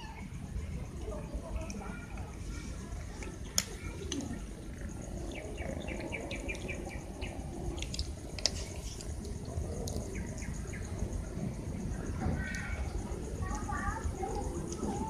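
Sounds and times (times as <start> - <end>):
bird chirping: 5.1 - 7.4.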